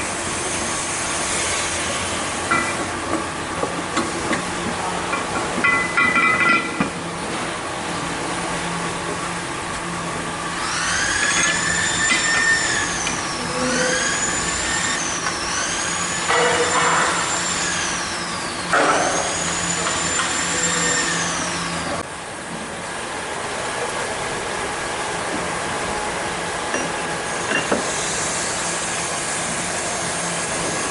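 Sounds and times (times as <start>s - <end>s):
electric motor whine: 10.5s - 22.0s.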